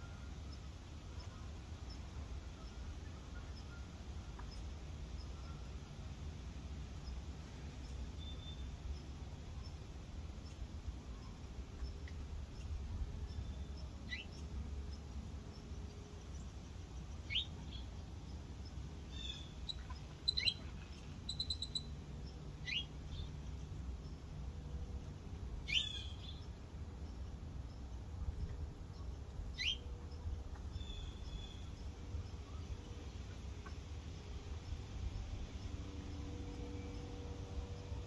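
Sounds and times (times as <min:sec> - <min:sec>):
high bird chirps: 0:19.2 - 0:20.6, 0:21.2 - 0:21.9.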